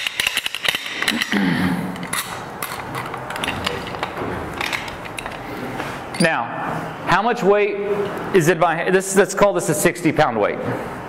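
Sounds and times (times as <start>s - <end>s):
metal carabiners clinking: 0.0s - 1.4s, 2.0s - 5.5s.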